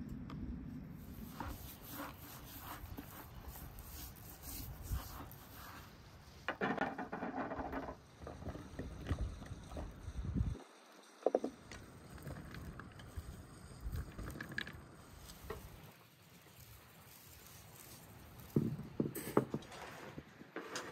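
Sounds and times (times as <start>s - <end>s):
hands rubbing spice into skin: 1.2s - 6.0s, 15.1s - 18.6s.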